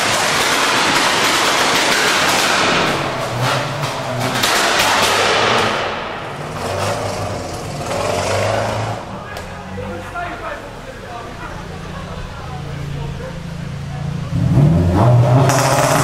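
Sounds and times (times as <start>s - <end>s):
sharp exhaust pops: 0.0s - 9.5s, 14.9s - 16.0s
car exhaust accelerating hard: 0.0s - 16.0s.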